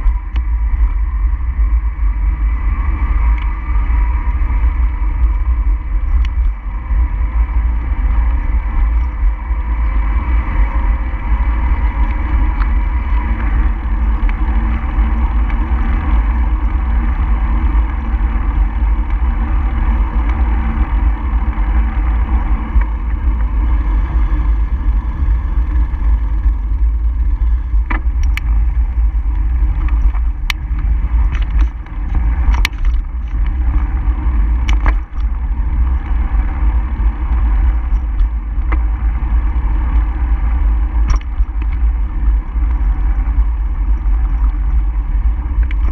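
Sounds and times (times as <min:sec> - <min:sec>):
road rumble: 0:00.0 - 0:45.9
wind on microphone: 0:00.0 - 0:45.9.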